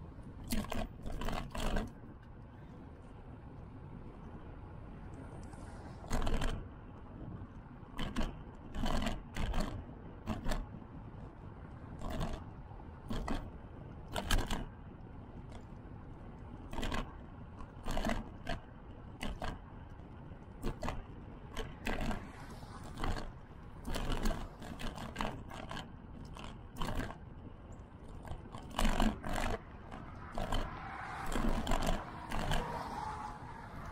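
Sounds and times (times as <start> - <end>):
low rumble of tyres and air: 0.0 - 33.9
short bursts of scraping: 28.7 - 33.9.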